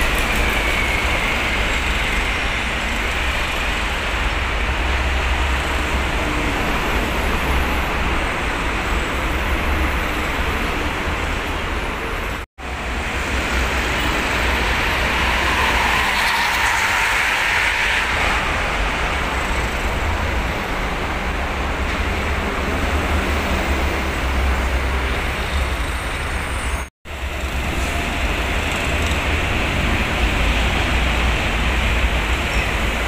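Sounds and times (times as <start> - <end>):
heavy traffic rumble: 0.0 - 33.0.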